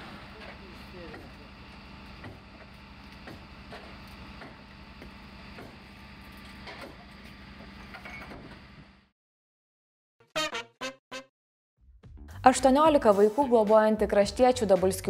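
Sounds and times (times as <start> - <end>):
fire engine idling: 0.0 - 7.9.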